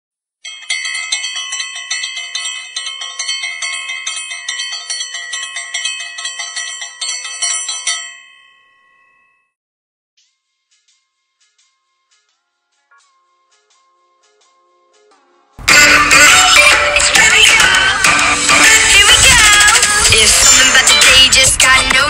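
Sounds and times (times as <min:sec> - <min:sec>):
bright bells jingle: 0:00.4 - 0:09.6.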